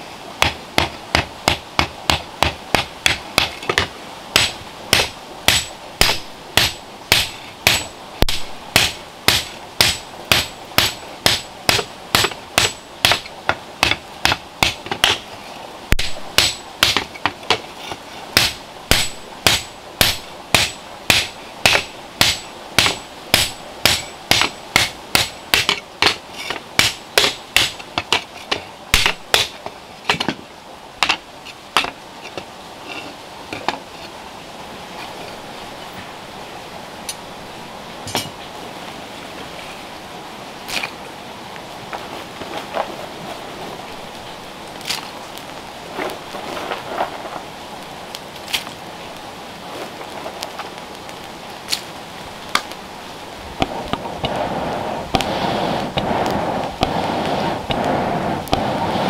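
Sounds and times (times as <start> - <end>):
hammer beating hot iron: 0.4 - 15.2, 15.9 - 17.6, 18.3 - 30.4, 55.1 - 57.0, 57.6 - 58.8.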